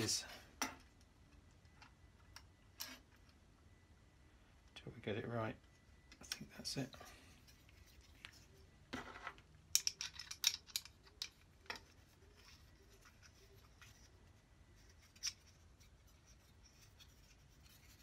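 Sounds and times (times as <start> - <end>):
small metal clicks: 9.7 - 11.9.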